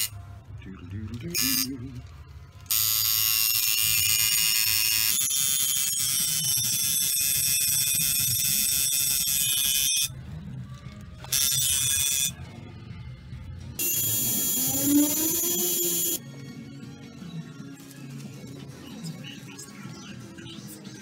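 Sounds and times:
electric tattoo machine buzzing: 1.4 - 1.7, 2.7 - 10.1, 11.3 - 12.4, 13.8 - 16.2.

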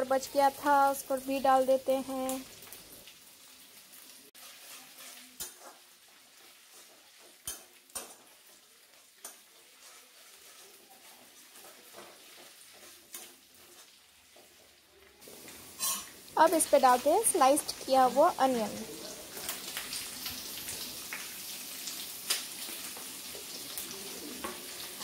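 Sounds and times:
spices frying in oil: 0.0 - 25.0
metal spatula stirring in pan: 4.3 - 20.5
spatula clinking on pan: 7.2 - 8.2, 15.8 - 16.1.

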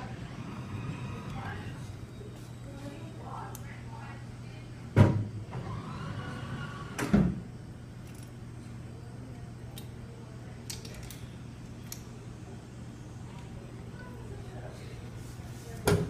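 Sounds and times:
vending machine motor whine: 0.0 - 4.0, 5.2 - 8.9
steady low hum: 0.0 - 15.8.

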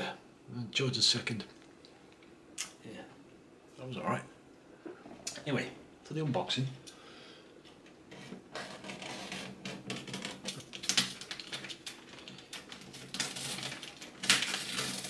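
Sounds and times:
packing tape and paper tearing: 8.5 - 15.0.

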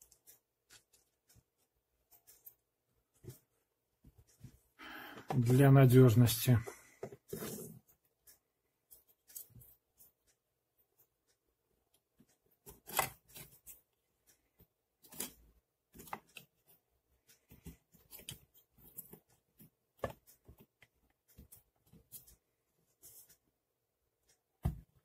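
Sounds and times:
plastic parts clicking and scraping: 6.6 - 10.1, 17.3 - 22.4.

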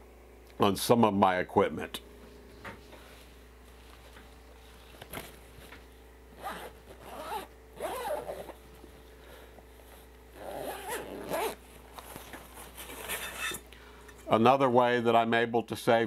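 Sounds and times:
bag fabric rustling: 6.3 - 8.7, 9.3 - 13.2
zipper being pulled: 6.4 - 8.6, 10.3 - 11.6.

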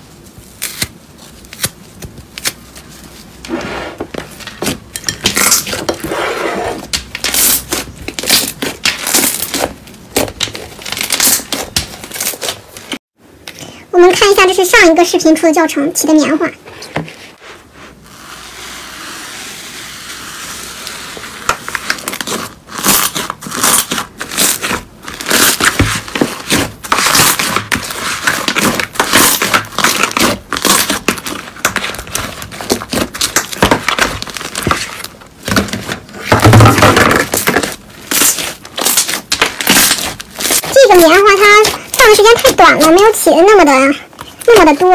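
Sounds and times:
slime crackling and tearing: 7.1 - 12.8, 21.0 - 36.0, 37.2 - 43.2.

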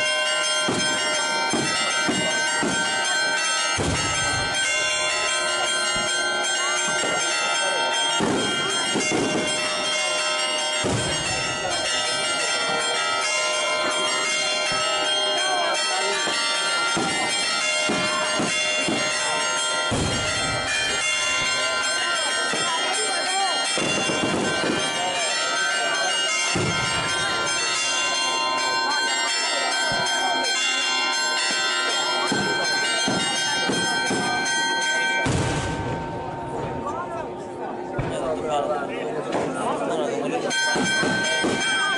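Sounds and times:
church bells ringing: 0.0 - 41.9
crowd voices: 0.0 - 41.9.

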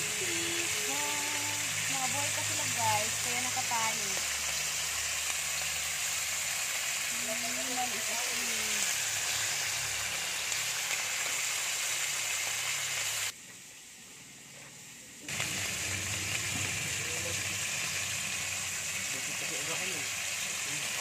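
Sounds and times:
crabs sizzling in pot: 0.0 - 21.0.

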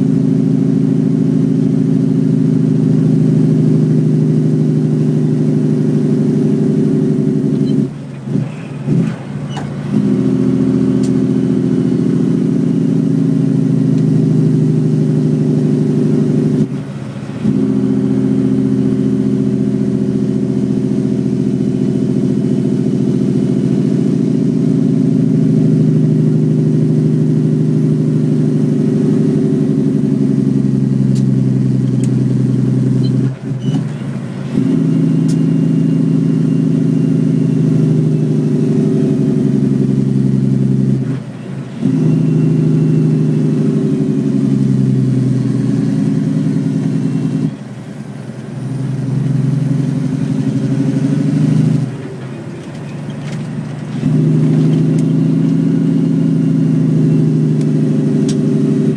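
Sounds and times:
truck engine brake droning: 6.5 - 13.1, 30.4 - 58.9.

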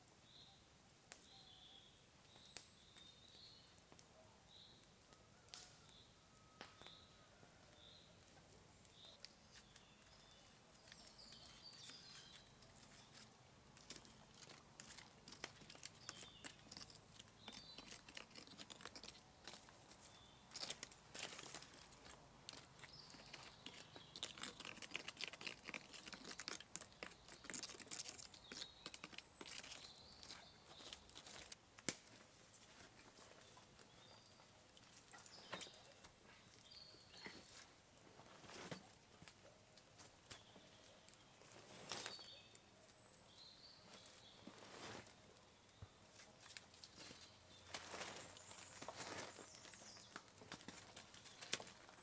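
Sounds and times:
faint bird chirps: 0.2 - 15.0
campfire embers crackling: 7.7 - 32.8.

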